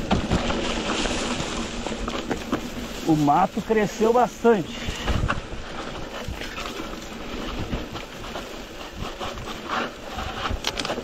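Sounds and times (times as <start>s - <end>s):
bike clicking and knocking: 0.0s - 2.7s
tyres rolling on rough trail: 0.0s - 11.0s.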